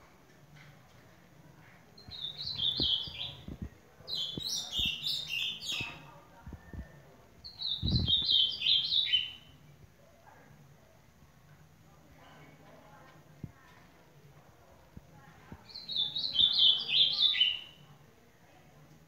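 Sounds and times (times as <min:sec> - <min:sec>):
bird singing whistled notes: 0:02.0 - 0:03.5, 0:06.8 - 0:09.5, 0:15.7 - 0:17.8.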